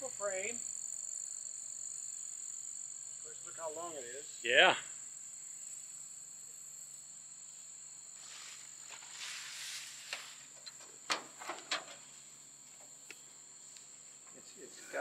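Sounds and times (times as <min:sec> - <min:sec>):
insects trilling: 0:00.0 - 0:15.0
soft rustling: 0:08.1 - 0:14.4.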